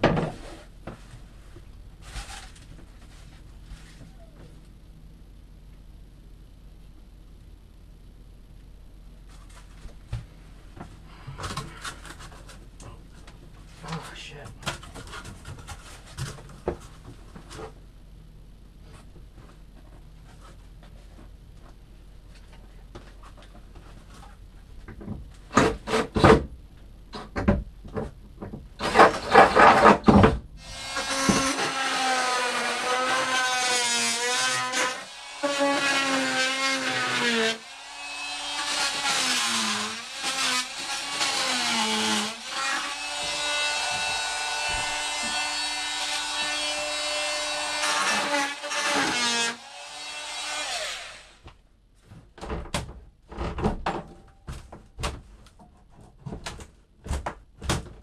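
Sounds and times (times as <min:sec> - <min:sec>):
power tool grinding fiberglass: 0:30.6 - 0:51.4.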